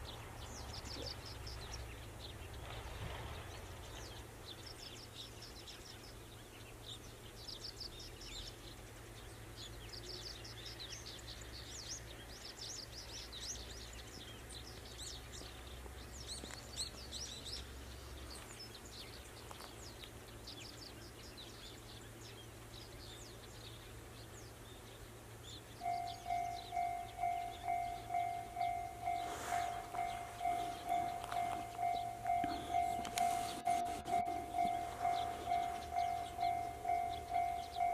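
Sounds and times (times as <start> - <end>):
small birds chirping: 0.0 - 37.9
low steady hum: 20.2 - 37.9
level-crossing bell ringing: 25.8 - 37.9.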